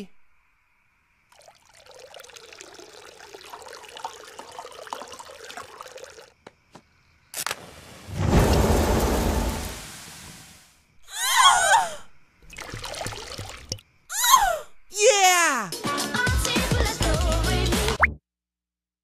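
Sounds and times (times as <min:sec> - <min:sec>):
beer pouring in a trickle: 0:01.3 - 0:06.4, 0:12.4 - 0:13.8
liquid splashing: 0:01.3 - 0:06.4, 0:12.4 - 0:13.8.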